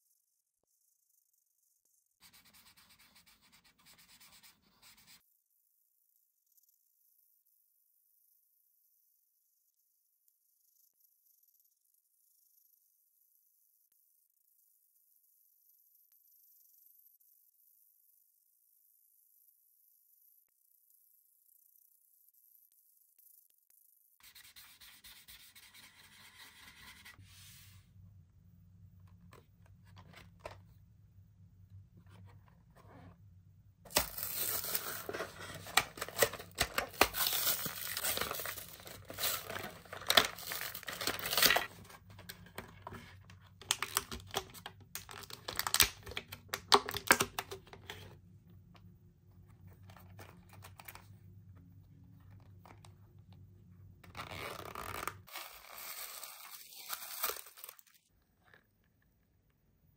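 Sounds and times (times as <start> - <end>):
tissue paper rustling: 33.9 - 41.7, 55.3 - 58.0
plastic packaging crackling: 33.9 - 41.8, 54.9 - 58.0.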